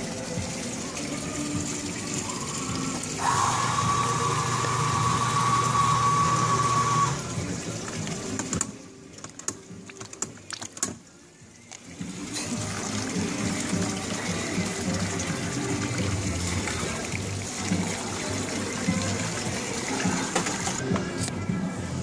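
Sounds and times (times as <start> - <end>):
machine whining: 0.0 - 8.6.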